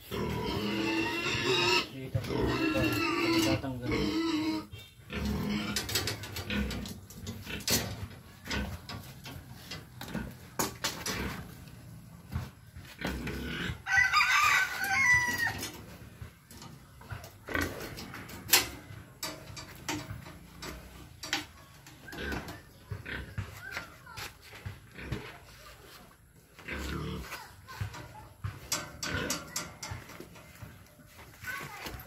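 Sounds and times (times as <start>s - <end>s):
clicks and knocks on wire gate: 5.5s - 11.3s, 17.5s - 22.6s, 28.6s - 30.4s
rooster crowing: 13.8s - 15.6s.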